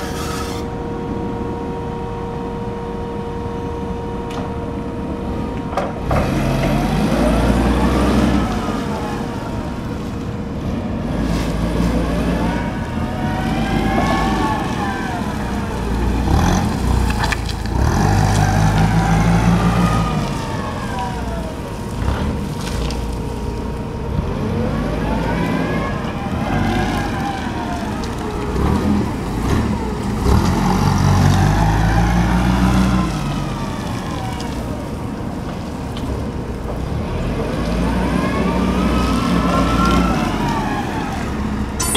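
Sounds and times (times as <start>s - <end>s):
engine whine: 0.0s - 41.9s
forklift engine revving: 5.0s - 33.8s.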